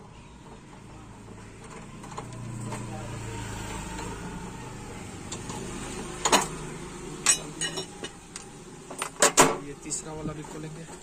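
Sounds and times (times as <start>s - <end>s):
metallic clinks and knocks: 7.2s - 9.6s.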